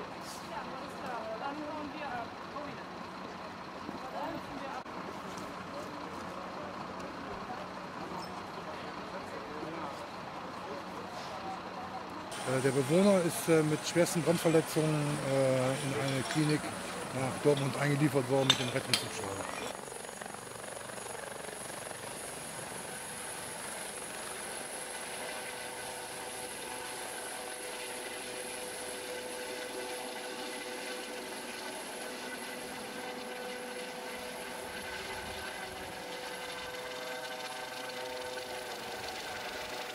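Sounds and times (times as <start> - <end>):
helicopter rotor rush: 0.0 - 3.0, 11.8 - 39.9
helicopter turbine whine: 0.0 - 4.8, 11.6 - 39.9.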